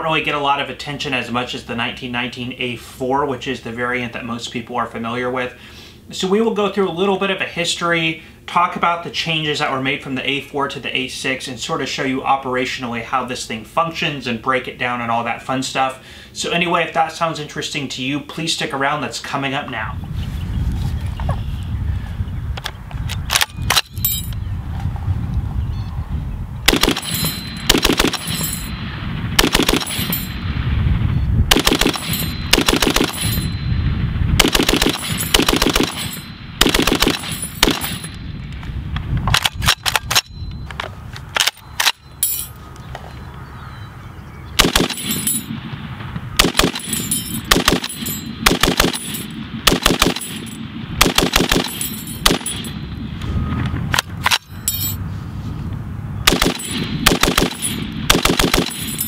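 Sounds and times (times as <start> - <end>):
machine gun firing bursts: 26.7 - 28.6, 29.4 - 30.4, 31.5 - 33.4, 34.4 - 38.1, 44.6 - 45.2, 46.4 - 52.6, 56.3 - 59.0.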